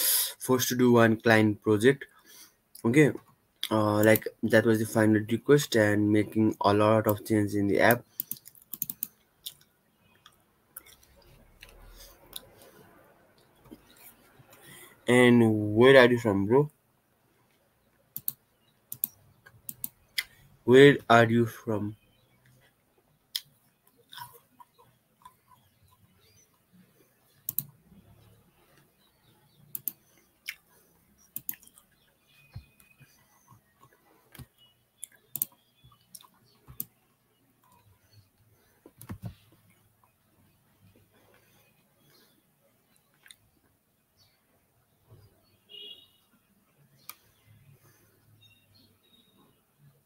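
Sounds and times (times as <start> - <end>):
computer keys clicking: 4.0 - 4.3, 7.9 - 9.2, 18.1 - 20.0, 27.4 - 27.8, 29.7 - 30.1, 31.3 - 32.9, 34.3 - 37.0.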